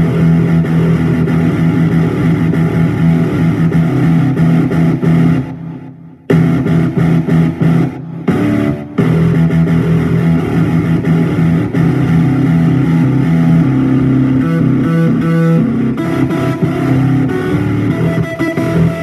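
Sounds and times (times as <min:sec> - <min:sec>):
guitar music with held notes: 0:00.0 - 0:19.0.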